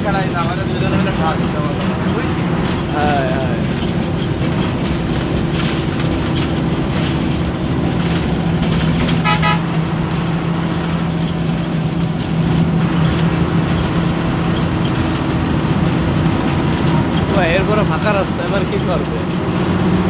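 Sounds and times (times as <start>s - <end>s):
bus engine drone: 0.0s - 20.0s
road noise: 0.0s - 20.0s
rapidly pulsing horn: 9.1s - 9.8s.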